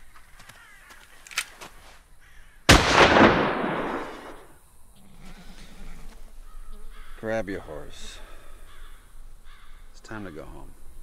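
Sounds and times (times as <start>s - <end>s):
gunshot with echo: 2.7s - 4.4s.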